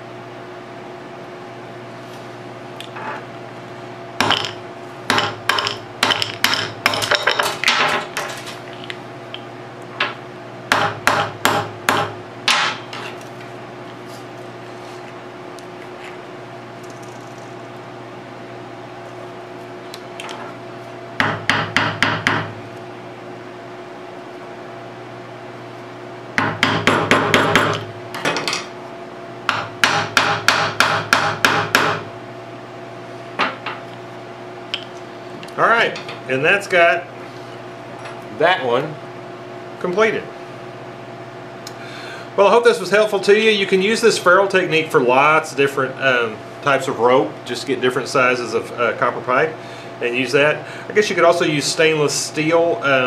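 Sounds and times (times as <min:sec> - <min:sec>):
hammer tapping metal: 0:04.2 - 0:07.6, 0:10.7 - 0:12.8, 0:26.4 - 0:27.8.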